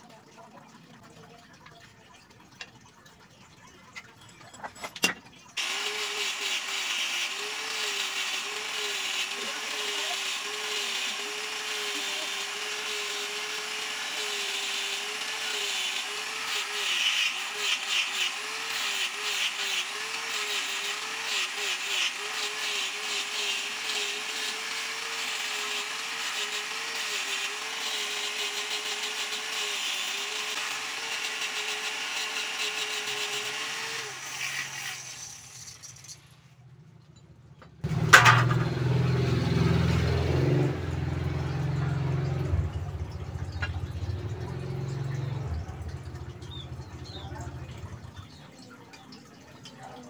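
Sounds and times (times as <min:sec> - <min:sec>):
angle grinder sanding: 0:05.6 - 0:36.2.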